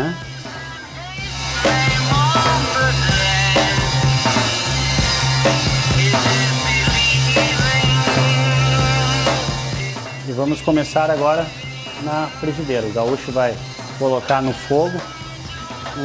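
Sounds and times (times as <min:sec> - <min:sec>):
rock music with drums: 0:00.0 - 0:16.0.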